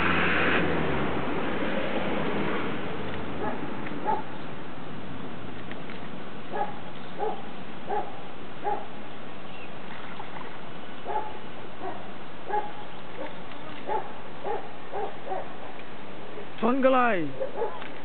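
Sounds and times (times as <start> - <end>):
dog barking: 3.4 - 4.3, 6.5 - 8.9, 11.0 - 16.6, 17.3 - 17.9.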